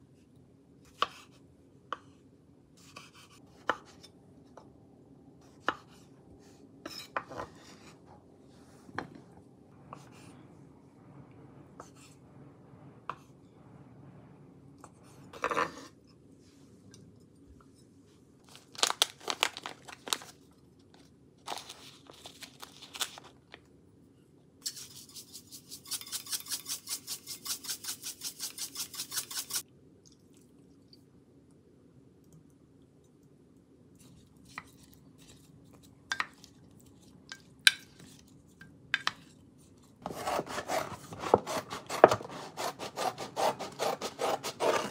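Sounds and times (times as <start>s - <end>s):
pepper mill grinding: 24.6s - 29.6s.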